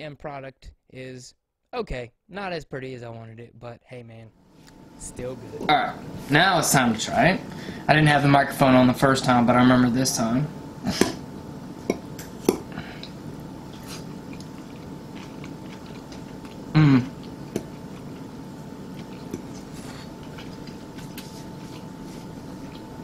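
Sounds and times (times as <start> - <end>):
faint chewing: 11.9 - 23.0
person humming: 16.7 - 17.2.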